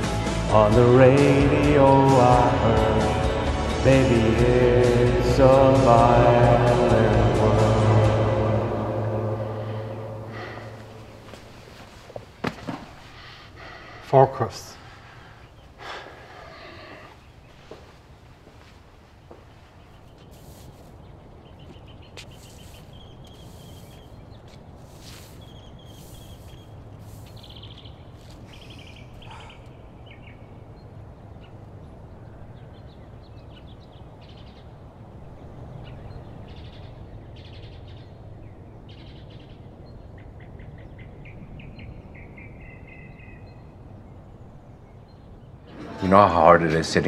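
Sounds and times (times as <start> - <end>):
low outdoor rumble: 0.0 - 47.0
small birds chirping: 9.6 - 47.0.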